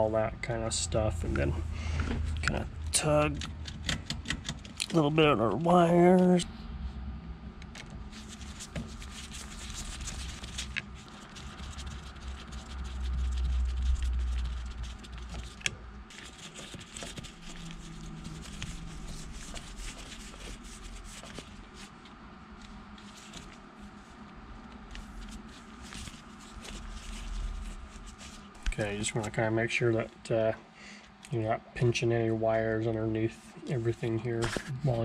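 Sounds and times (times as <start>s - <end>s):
low rumble: 0.0s - 3.8s, 5.0s - 8.5s
hands scratching and rustling wires: 2.2s - 5.2s, 7.6s - 29.4s.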